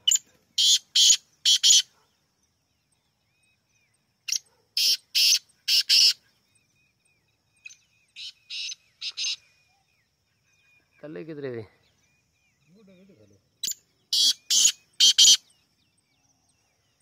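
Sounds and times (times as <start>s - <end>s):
bird calling harsh notes: 0.0s - 1.9s, 4.3s - 6.2s, 7.7s - 9.6s, 13.6s - 15.5s.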